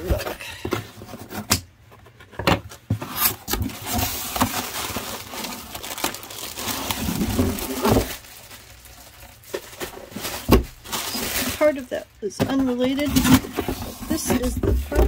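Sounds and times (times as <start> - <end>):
plastic air pillows crinkling: 3.6 - 15.0.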